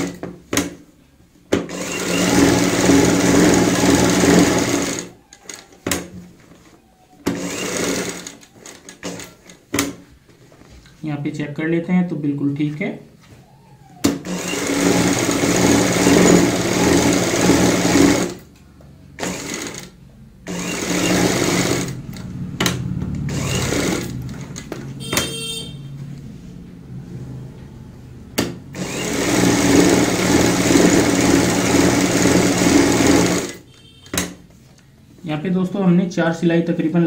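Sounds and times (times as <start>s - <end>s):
sewing machine running: 1.7s - 5.2s, 7.3s - 9.4s, 14.2s - 18.4s, 19.2s - 22.3s, 23.2s - 24.6s, 28.7s - 33.6s.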